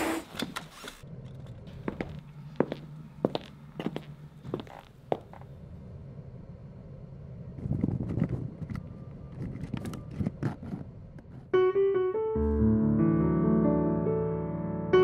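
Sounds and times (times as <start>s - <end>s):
piano playing sustained chords: 11.5s - 15.0s.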